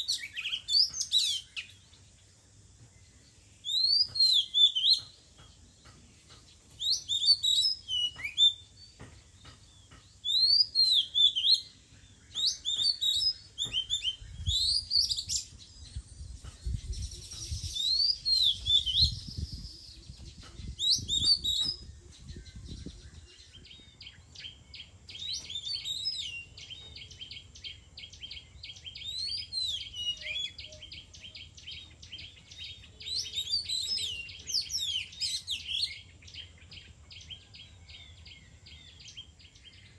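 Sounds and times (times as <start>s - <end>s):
bird singing whistled phrases: 3.6s - 5.1s, 6.8s - 8.7s, 10.2s - 15.5s, 16.8s - 27.4s, 28.1s - 36.1s.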